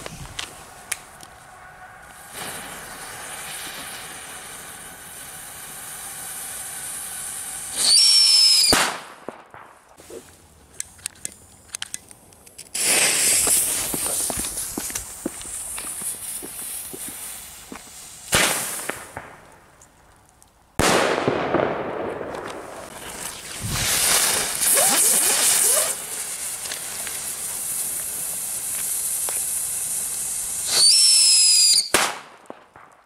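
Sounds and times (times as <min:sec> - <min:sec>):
firecracker crackling pops: 0:00.0 - 0:33.0
spraying hiss of sparks: 0:02.2 - 0:08.7, 0:12.7 - 0:19.0, 0:22.9 - 0:31.9
firework whistle and bang: 0:07.7 - 0:09.0, 0:23.6 - 0:26.0, 0:30.6 - 0:32.2.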